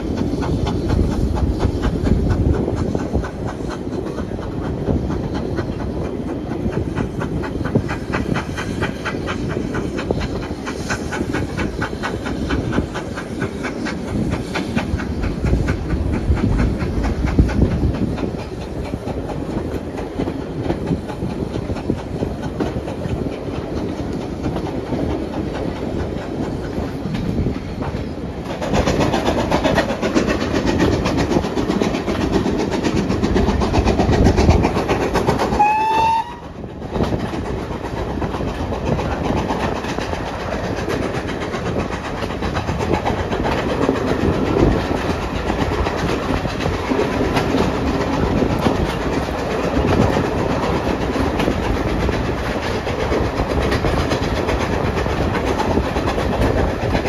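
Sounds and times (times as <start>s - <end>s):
train wheels rumbling on track: 0.0s - 57.0s
train whistle: 35.5s - 36.6s.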